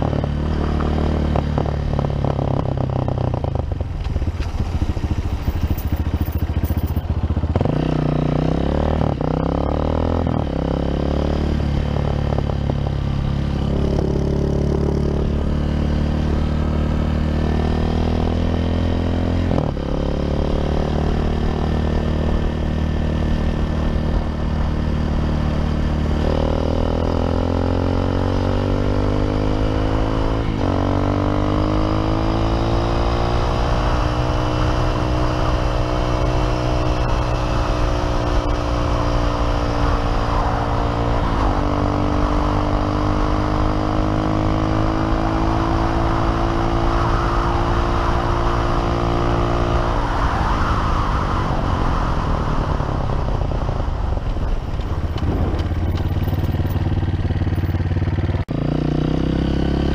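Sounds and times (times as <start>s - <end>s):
motorcycle engine accelerating: 0.0s - 59.9s
wind on microphone: 33.3s - 57.6s.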